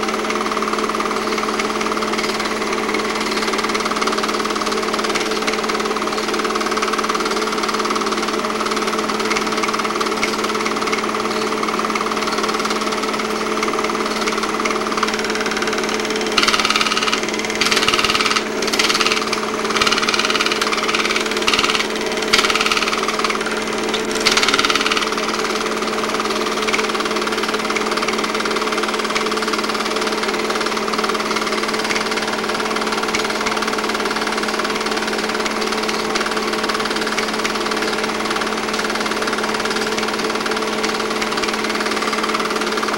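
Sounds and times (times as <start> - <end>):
film projector running: 0.0 - 42.9
irregular rattling bursts: 15.0 - 25.8.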